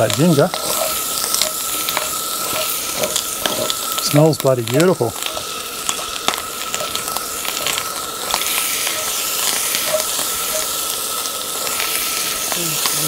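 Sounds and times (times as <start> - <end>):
metal spatula scraping a wok: 0.0 - 4.0
rice sizzling in a wok: 0.0 - 13.0.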